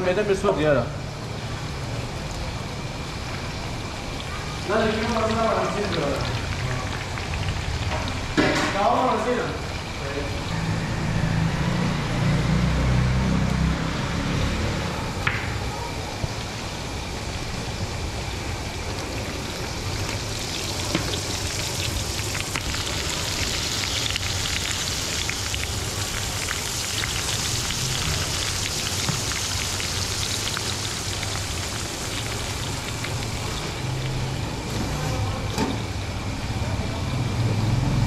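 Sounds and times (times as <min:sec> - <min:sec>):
meat sizzling in a wok: 0:00.0 - 0:36.5.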